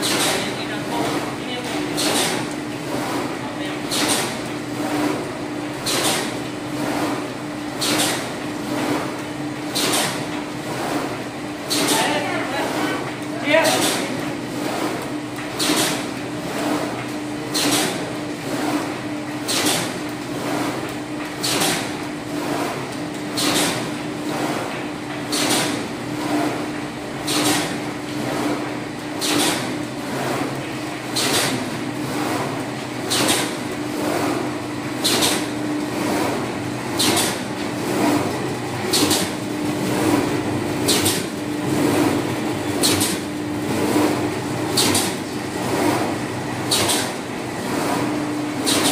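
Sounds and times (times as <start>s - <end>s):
machine hum: 22.0s - 48.9s.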